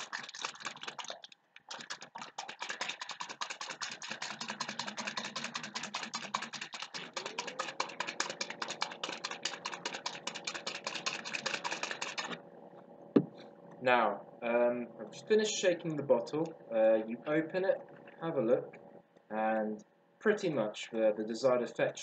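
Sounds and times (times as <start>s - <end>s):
plastic bottle rattling when shaken: 0.0s - 12.4s.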